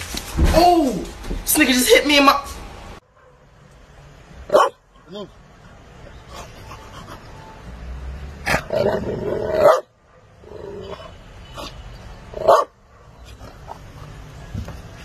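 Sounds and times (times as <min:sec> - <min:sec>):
dog barking: 0:03.1 - 0:03.6, 0:04.5 - 0:04.8, 0:09.6 - 0:10.5, 0:12.4 - 0:13.4.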